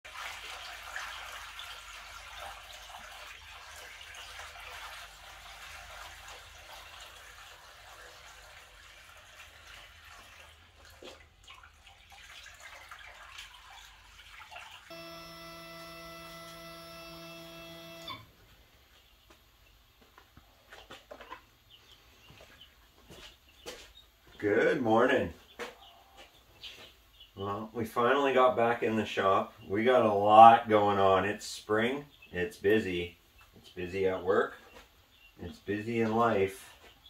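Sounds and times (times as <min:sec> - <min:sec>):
water pouring from a bucket: 0:00.1 - 0:14.9
electrical hum with tones: 0:14.9 - 0:18.8.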